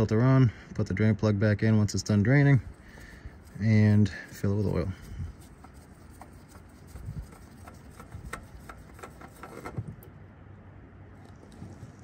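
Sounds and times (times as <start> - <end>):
oil filter being unscrewed: 2.4 - 10.2, 11.2 - 12.0.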